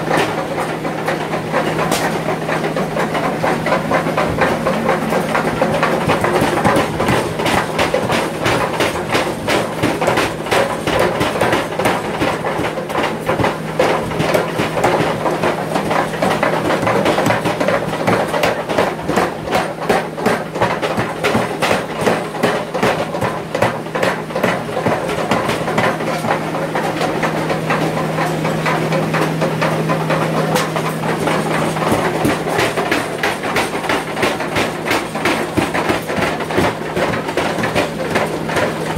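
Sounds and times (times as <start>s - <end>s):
power hammer pounding metal: 0.0s - 38.9s.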